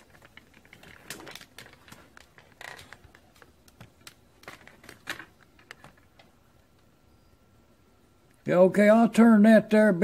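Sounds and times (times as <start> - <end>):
light clicks and taps: 0.0 - 6.9.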